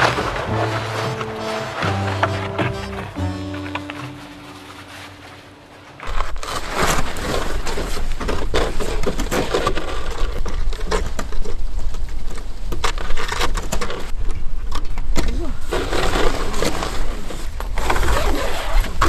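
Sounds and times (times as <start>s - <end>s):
crunching on frozen snow: 0.0s - 8.8s
tent fabric rustling: 0.0s - 9.0s.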